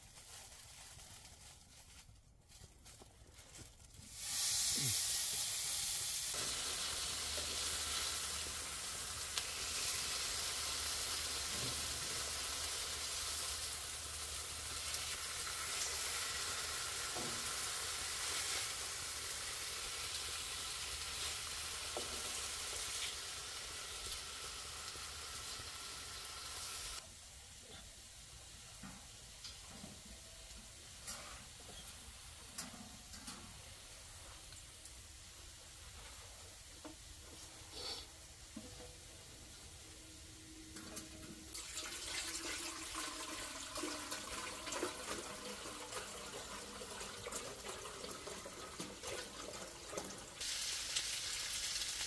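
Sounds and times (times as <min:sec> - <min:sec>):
pork sizzling in a pan: 0:04.1 - 0:29.6, 0:41.5 - 0:52.0.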